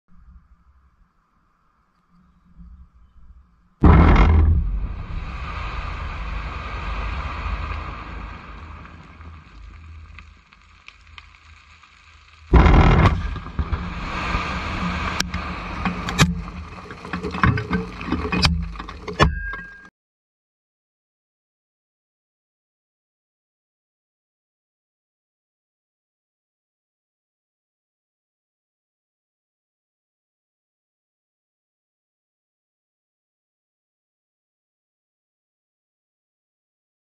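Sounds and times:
quarry blast boom: 3.8 - 10.1
rock debris knocks: 3.8 - 19.6.

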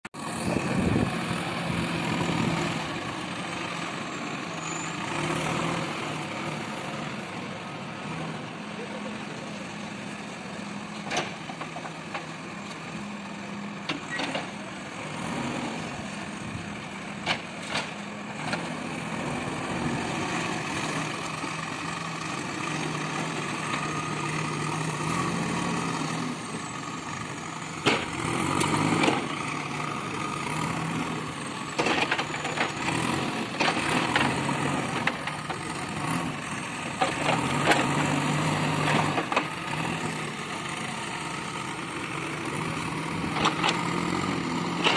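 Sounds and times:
diesel engine running: 0.2 - 44.9.

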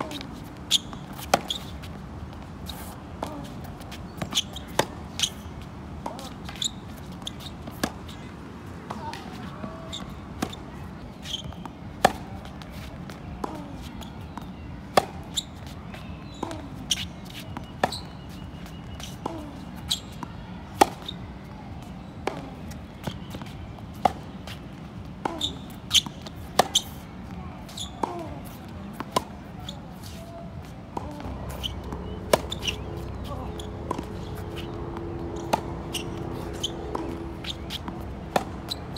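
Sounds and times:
tennis ball bouncing on court: 0.0 - 2.0, 2.6 - 21.2, 22.2 - 24.6, 25.2 - 27.0, 27.6 - 29.3, 31.0 - 38.9
tennis ball hit by racket: 25.2 - 27.0, 31.0 - 38.9.

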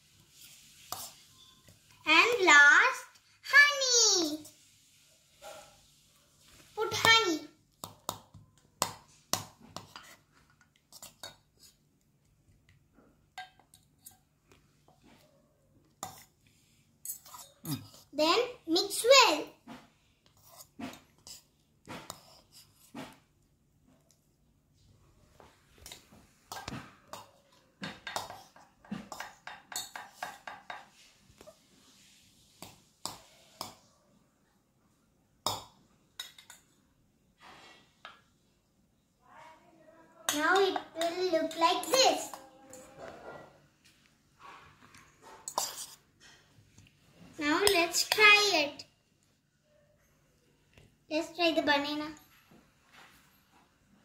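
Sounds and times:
spoons clinking against metal bowls: 13.3 - 14.3, 27.9 - 30.9, 36.2 - 36.7, 45.4 - 46.0.

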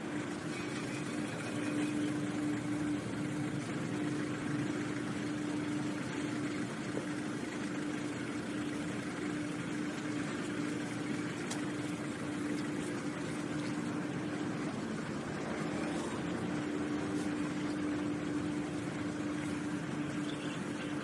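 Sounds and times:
vehicle engines idling: 10.3 - 21.0.

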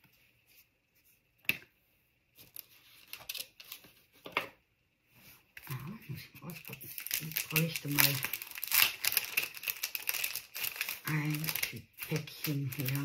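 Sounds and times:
hands rustling craft supplies: 5.2 - 13.0.

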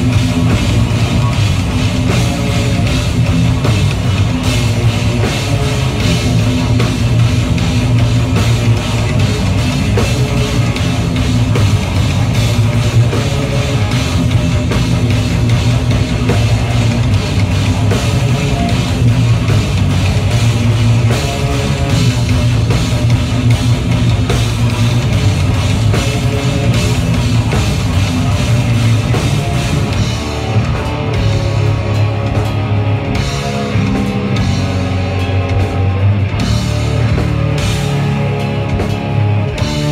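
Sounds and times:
live heavy rock band: 0.0 - 39.9.

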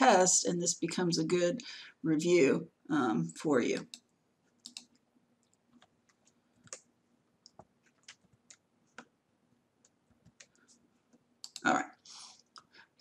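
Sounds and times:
faint irregular clicks: 3.8 - 9.1, 9.8 - 12.8.

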